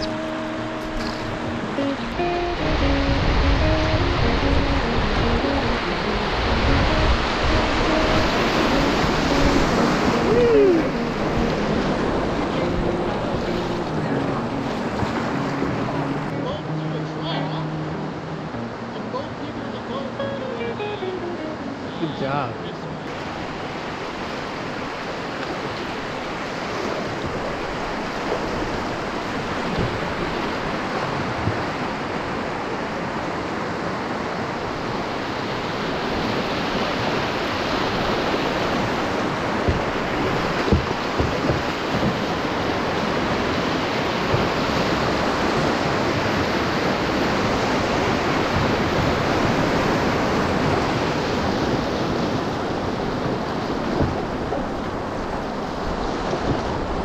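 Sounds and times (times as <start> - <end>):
river rapids rushing: 0.0 - 57.0
sharp knocks: 40.6 - 42.2.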